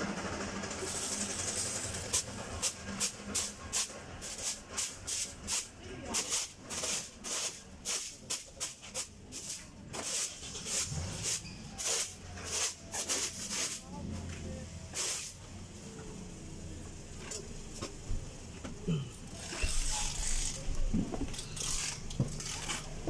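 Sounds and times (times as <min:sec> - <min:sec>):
broom sweeping floor mat: 0:00.9 - 0:14.3, 0:14.9 - 0:15.4.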